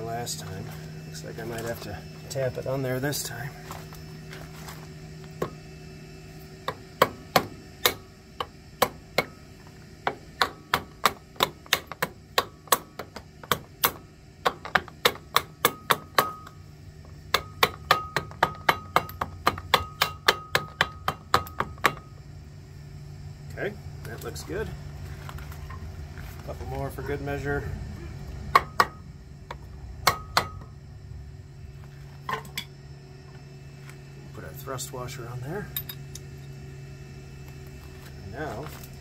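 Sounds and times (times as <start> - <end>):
hammer tapping metal: 10.1 - 16.6, 17.3 - 22.1, 28.5 - 30.7.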